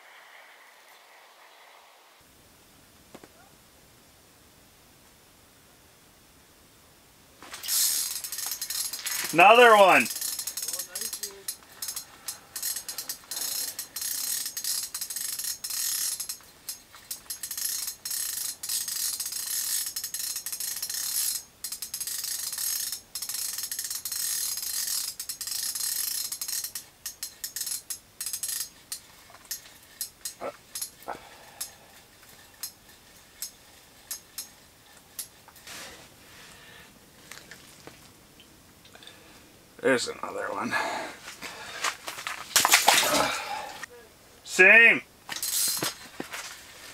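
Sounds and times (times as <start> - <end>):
fishing reel ratcheting clicks: 7.6 - 31.0.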